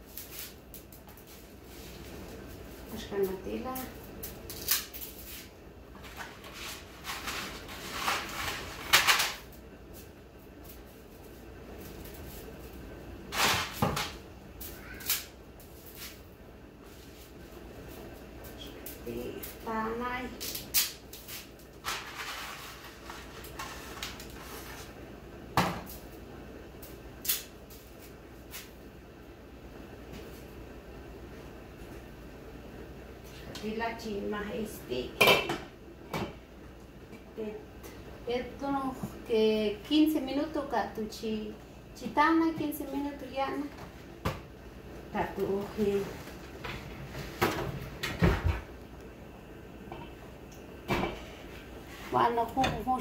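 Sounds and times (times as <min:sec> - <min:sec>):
dry spaghetti rustling and crackling: 0:00.0 - 0:25.0.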